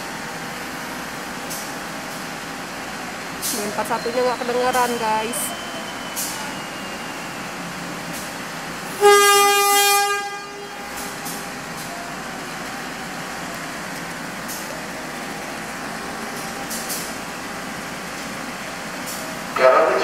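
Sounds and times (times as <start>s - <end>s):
diesel locomotive horn blast: 8.8s - 11.6s, 19.5s - 20.0s.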